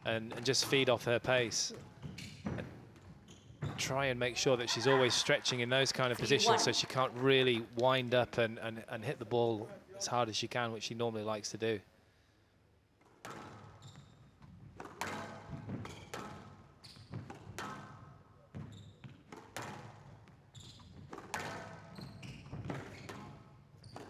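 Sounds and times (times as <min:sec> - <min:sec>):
squash ball hitting rackets and walls: 0:13.0 - 0:24.0.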